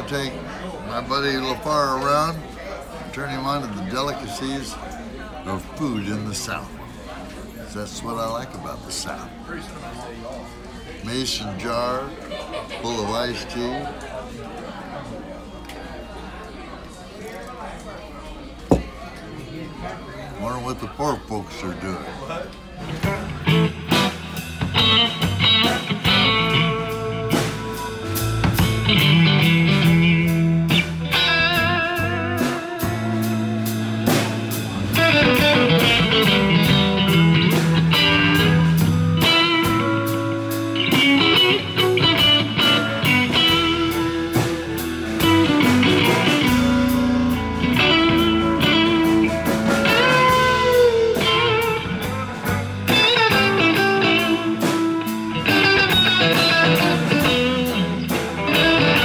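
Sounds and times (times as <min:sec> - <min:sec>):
electric guitar lead lines: 0:23.0 - 0:59.0
steady drum beat: 0:23.0 - 0:59.0.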